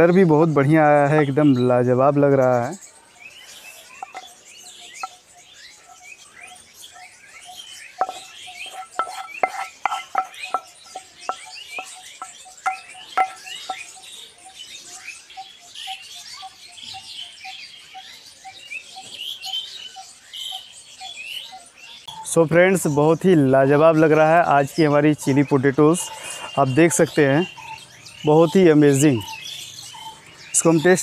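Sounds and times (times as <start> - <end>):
birds chirping: 0.0 - 31.0
sharp taps: 8.0 - 13.9.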